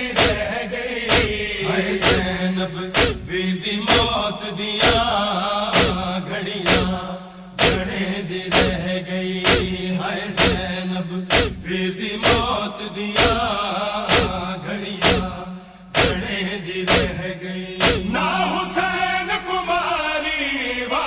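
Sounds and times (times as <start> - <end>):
men chanting in unison: 0.0 - 21.0
hands striking chests: 0.1 - 0.5, 1.1 - 1.4, 2.0 - 2.4, 3.0 - 3.3, 3.9 - 4.1, 5.8 - 6.1, 6.7 - 7.0, 7.6 - 8.8, 9.5 - 9.8, 10.4 - 11.6, 12.2 - 12.6, 13.2 - 13.5, 14.1 - 15.4, 16.0 - 16.3, 16.9 - 17.2, 17.8 - 18.1.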